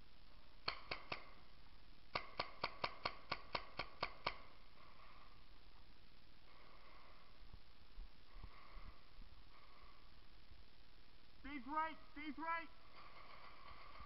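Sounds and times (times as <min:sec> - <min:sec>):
paintball marker firing: 0:02.1 - 0:04.5.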